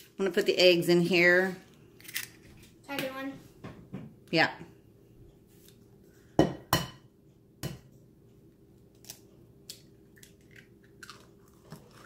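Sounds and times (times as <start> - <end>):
egg knocking on glass bowl: 6.4 - 7.0.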